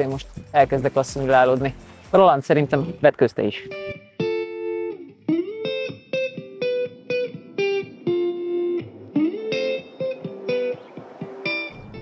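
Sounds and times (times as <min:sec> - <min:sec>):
guitar plucking single notes: 0:02.8 - 0:12.0.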